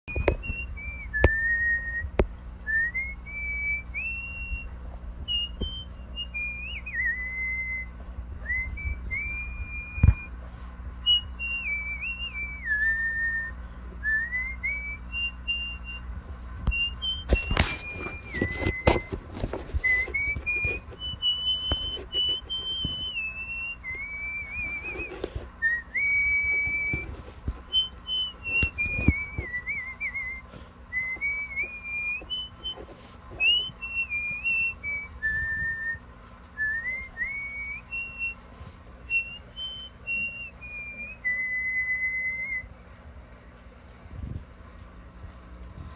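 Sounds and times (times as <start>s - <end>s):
person whistling a tune: 0.1s - 4.7s, 5.3s - 10.3s, 11.0s - 16.1s, 16.7s - 36.0s, 36.6s - 38.4s, 39.1s - 42.7s
rustling handling noise: 17.2s - 36.6s.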